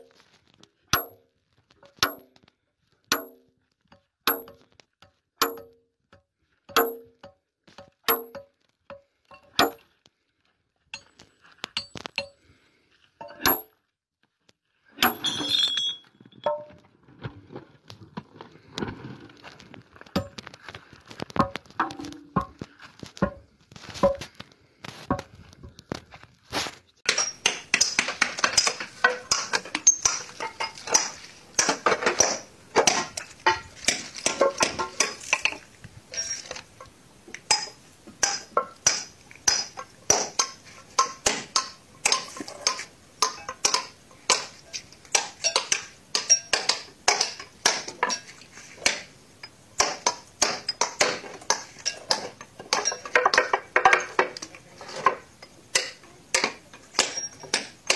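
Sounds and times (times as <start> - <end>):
sledgehammer striking steel wedges: 0.9 - 1.2, 1.9 - 2.4, 3.1 - 3.5, 4.3 - 4.7, 5.4 - 5.8, 6.7 - 8.5, 9.3 - 9.9, 13.2 - 13.8, 15.0 - 16.7, 27.1 - 35.6, 37.5 - 44.5, 45.1 - 49.1, 49.8 - 54.2, 55.7 - 57.9.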